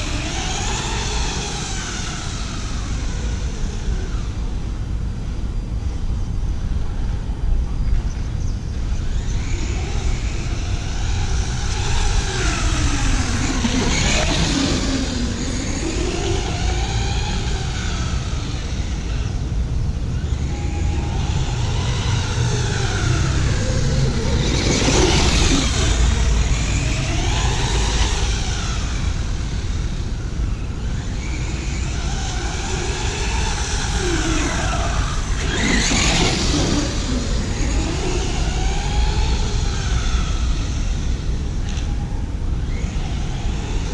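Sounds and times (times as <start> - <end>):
toy truck motor whining: 20.2 - 42.0.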